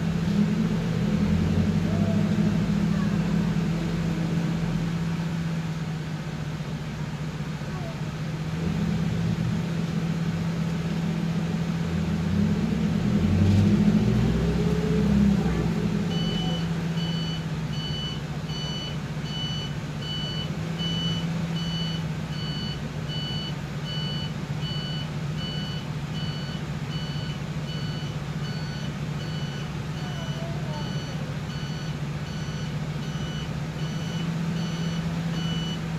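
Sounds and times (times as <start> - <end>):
engine humming: 0.0 - 35.9
reversing alarm beeping: 16.1 - 35.8.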